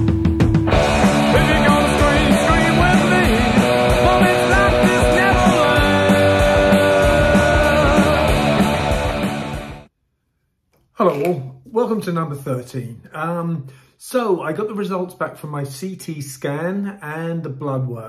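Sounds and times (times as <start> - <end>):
loud rock music: 0.0 - 9.9.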